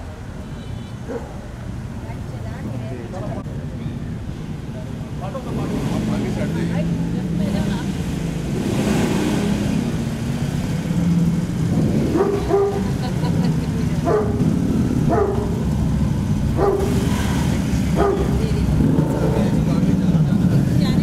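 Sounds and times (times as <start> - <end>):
engine rumble: 0.0 - 21.0
dog barking: 1.0 - 1.5, 12.1 - 13.0, 14.0 - 15.6, 16.5 - 17.1, 17.9 - 18.4.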